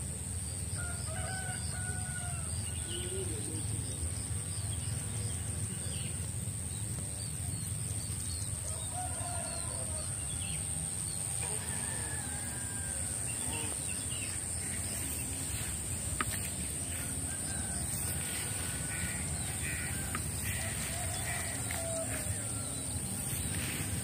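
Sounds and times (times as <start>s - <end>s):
rooster crowing: 0.8s - 2.7s, 8.6s - 10.7s, 11.3s - 13.8s, 16.8s - 23.7s.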